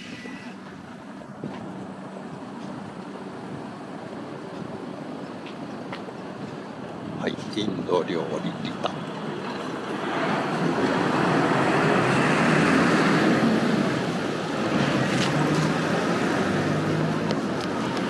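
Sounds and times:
roadway hum: 0.0s - 18.0s
vehicle passing: 8.4s - 18.0s.

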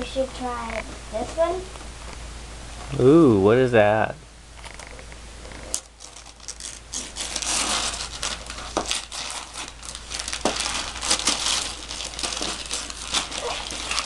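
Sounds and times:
wrapping paper crinkling and tearing: 5.7s - 14.0s.

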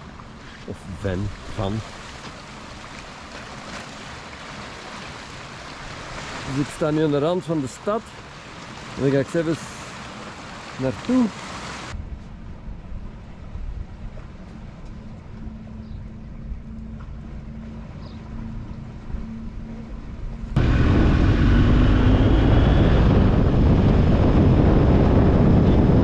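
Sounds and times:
low wind rumble: 0.0s - 26.0s
motorcycle engine and wind rush: 19.0s - 26.0s.

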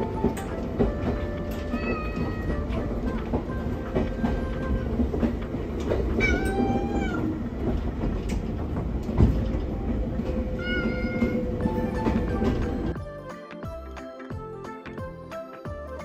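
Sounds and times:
train car rumble: 0.0s - 13.0s
recorded cat meow: 6.2s - 7.3s, 10.6s - 11.4s.

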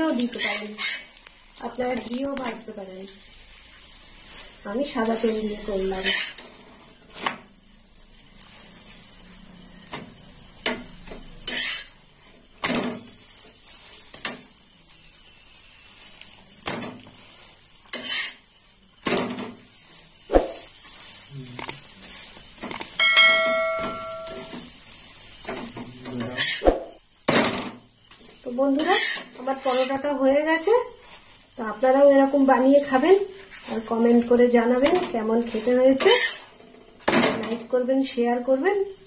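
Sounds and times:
steel spatula scraping a griddle: 0.0s - 31.6s, 34.8s - 37.2s
frying sizzle: 0.0s - 39.0s
short chime: 23.0s - 24.5s.

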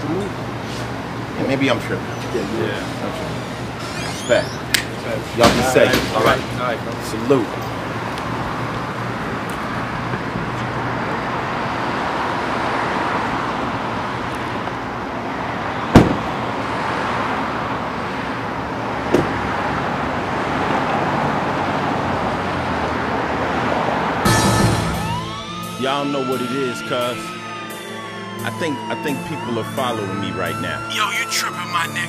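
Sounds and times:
city street traffic: 0.0s - 32.0s
car door slamming: 15.9s - 16.4s, 19.0s - 19.5s.

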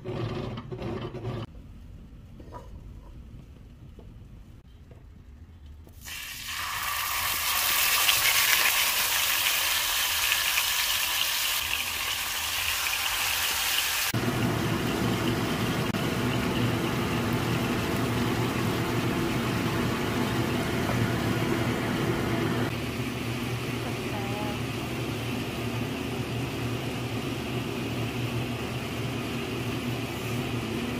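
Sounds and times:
sauce cooking in pan: 6.0s - 23.7s
pork frying in hot oil: 6.0s - 30.9s.

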